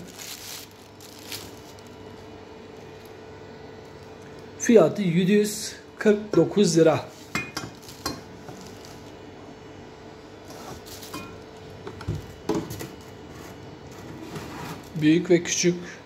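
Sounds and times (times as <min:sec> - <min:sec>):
plastic wrapping rustling: 0:00.0 - 0:05.0, 0:06.7 - 0:09.3, 0:10.4 - 0:13.9.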